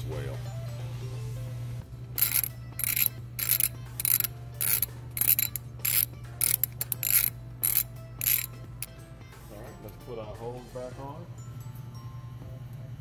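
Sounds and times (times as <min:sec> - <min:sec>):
socket ratchet clicking: 0:02.2 - 0:09.0.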